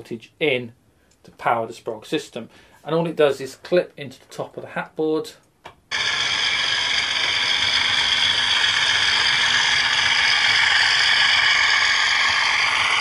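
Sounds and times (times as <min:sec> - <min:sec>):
model train motor whirring on track: 0:05.9 - 0:13.0.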